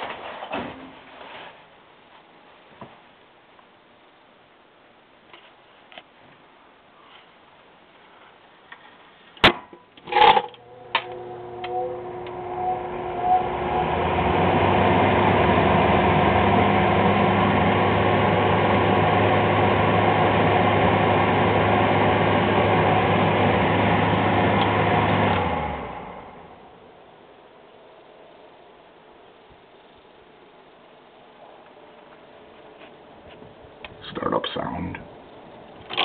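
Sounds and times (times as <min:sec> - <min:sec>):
exhaust fan motor humming: 0:10.4 - 0:27.0.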